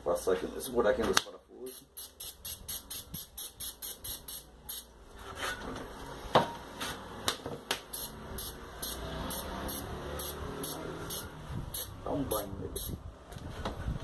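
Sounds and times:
aerosol can spraying puffs: 1.7 - 4.9, 7.8 - 12.0.

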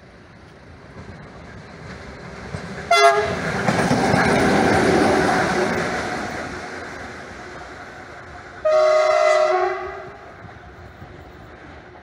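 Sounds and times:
locomotive rolling rumble: 0.0 - 12.0
locomotive horn blast: 2.9 - 3.4, 8.6 - 10.3.

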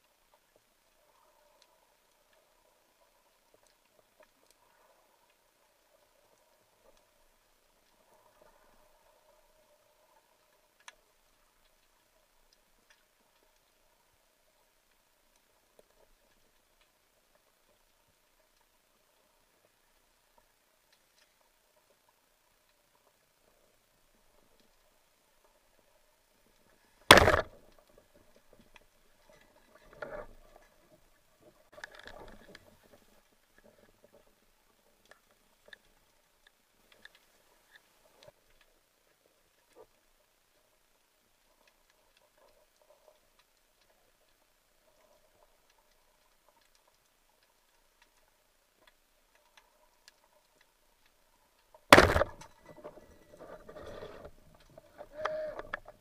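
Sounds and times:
faint clicking underwater: 0.0 - 56.0
speargun firing crack: 27.1 - 27.6, 51.9 - 52.4.

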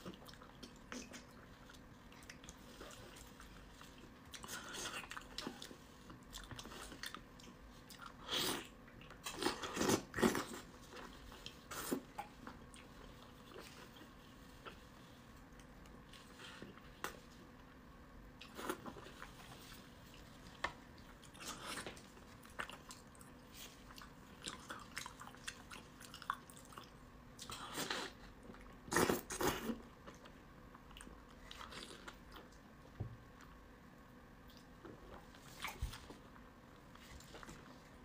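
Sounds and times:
person chewing fish: 21.0 - 27.7.

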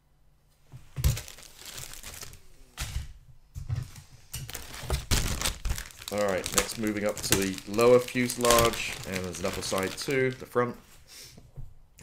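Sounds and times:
plastic bag crinkling: 1.0 - 2.6, 4.4 - 10.9.

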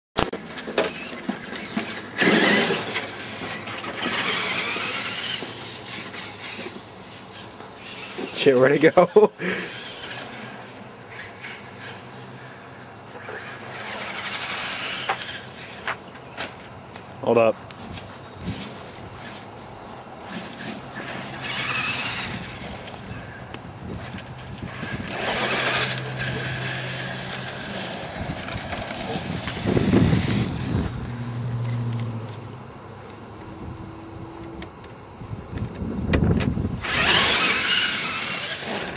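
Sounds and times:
tyre and chassis noise: 0.2 - 17.2, 17.8 - 38.9
rc truck motor whining: 0.3 - 17.0, 18.1 - 32.4, 33.2 - 38.9
tyres hissing on asphalt: 0.8 - 16.0
steady low hum: 1.0 - 38.9.

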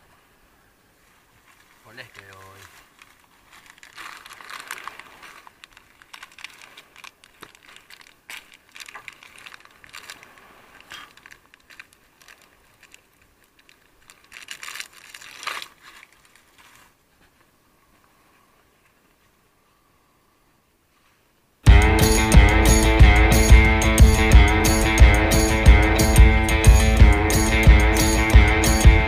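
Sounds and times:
foil packets crinkling: 1.4 - 16.9.

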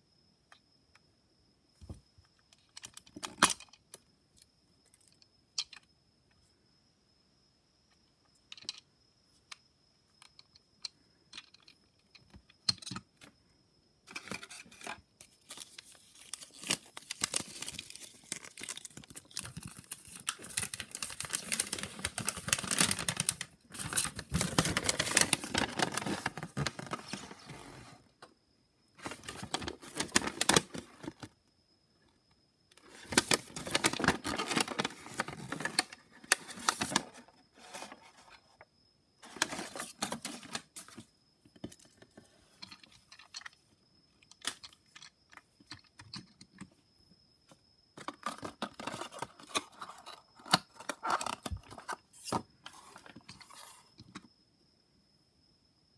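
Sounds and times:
paper crinkling: 15.4 - 27.5, 32.9 - 38.0.

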